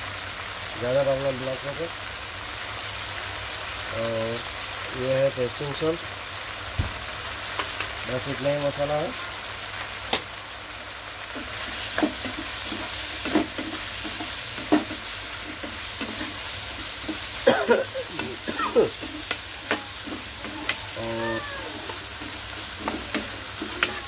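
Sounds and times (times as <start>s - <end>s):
chicken sizzling in pan: 0.0s - 24.0s
spatula scraping pan: 11.3s - 24.0s.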